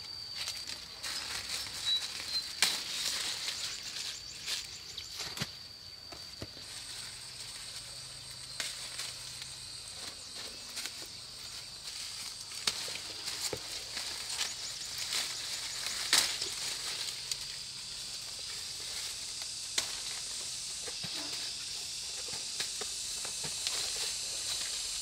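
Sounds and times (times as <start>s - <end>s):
insects droning: 0.0s - 25.0s
twigs snapping and leaves rustling: 0.4s - 17.8s, 18.4s - 20.3s.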